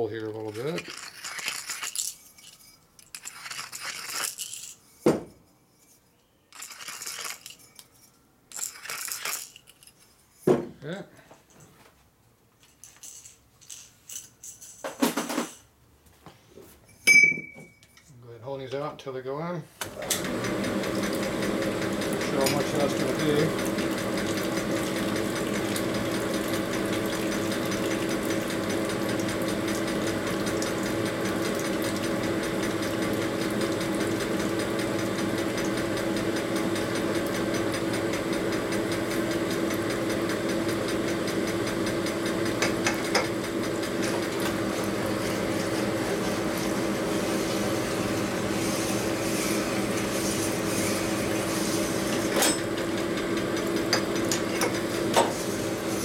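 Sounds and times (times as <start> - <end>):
honing machine running: 19.9 - 56.0.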